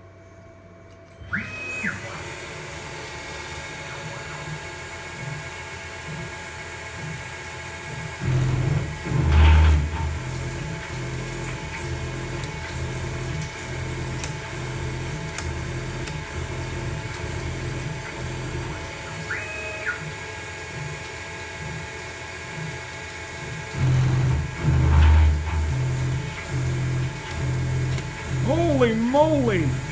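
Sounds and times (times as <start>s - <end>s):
mill cutter whine: 7.6s - 20.8s, 23.4s - 29.9s.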